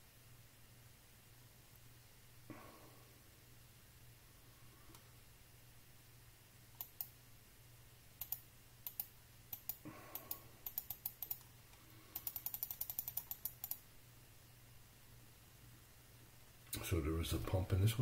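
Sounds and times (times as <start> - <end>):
low steady hum: 0.0 - 18.0
computer mouse clicks: 6.8 - 7.2, 8.2 - 13.8.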